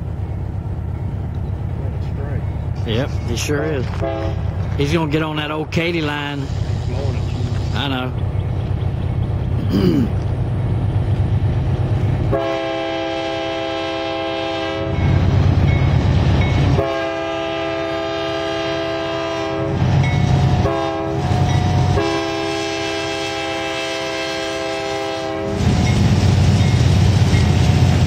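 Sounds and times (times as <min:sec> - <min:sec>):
diesel engine low rumble: 0:00.0 - 0:28.0
locomotive air horn blasts: 0:04.0 - 0:04.5, 0:12.3 - 0:15.1, 0:16.7 - 0:26.1.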